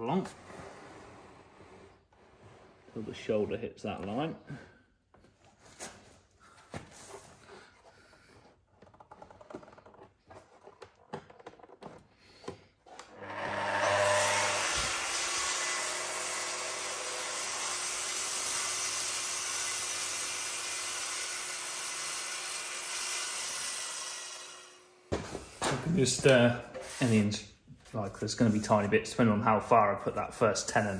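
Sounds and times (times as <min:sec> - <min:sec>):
spindle moulder cutting wood: 0:13.0 - 0:24.8.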